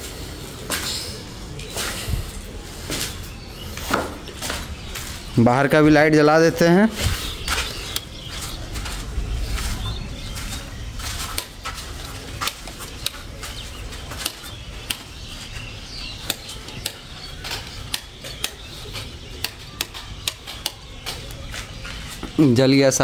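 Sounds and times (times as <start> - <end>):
low rumble: 7.0 - 12.4
sharp irregular clicks: 16.2 - 21.4.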